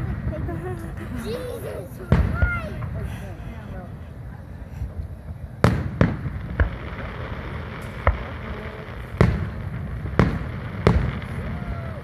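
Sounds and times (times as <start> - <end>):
background rumble: 0.0 - 12.0
firework shells booming: 2.1 - 3.1, 5.2 - 12.0.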